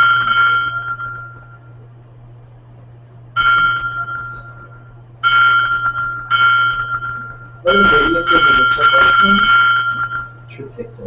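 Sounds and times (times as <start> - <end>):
electronic chime tones: 0.0 - 1.7, 3.4 - 10.5
steady low hum: 0.0 - 11.0.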